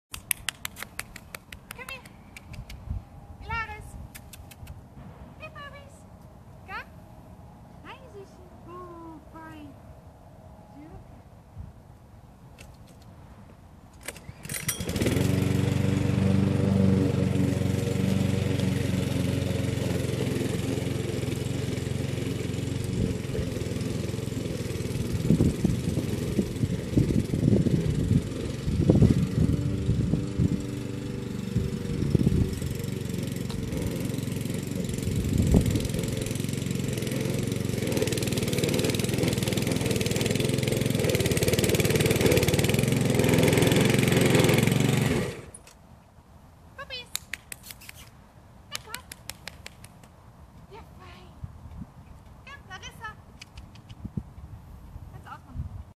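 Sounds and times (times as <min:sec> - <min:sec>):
lawn mower engine running: 0:14.0 - 0:45.7.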